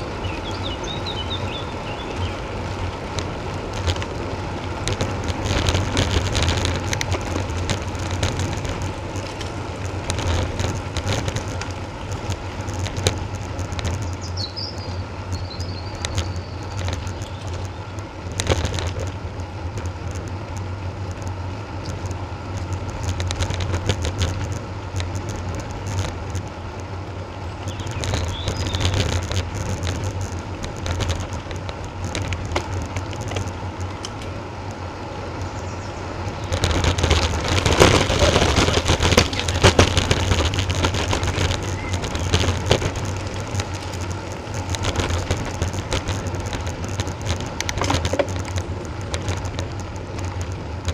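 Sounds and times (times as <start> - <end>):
bike tyre road noise: 0.0 - 50.9
wind rumble on microphone: 0.0 - 50.9
small rattling clicks: 3.1 - 26.9, 27.6 - 35.6, 36.2 - 50.9.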